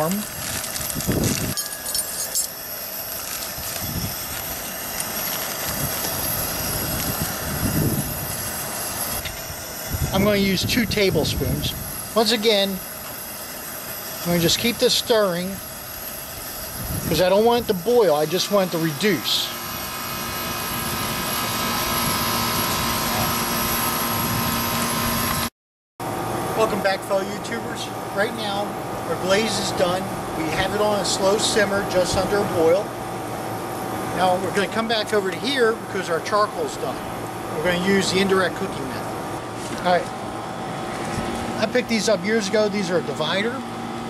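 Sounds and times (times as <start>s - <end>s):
camp stove burner roaring hiss: 0.0s - 25.5s, 26.1s - 44.0s
gas stove burner hissing: 4.1s - 22.0s.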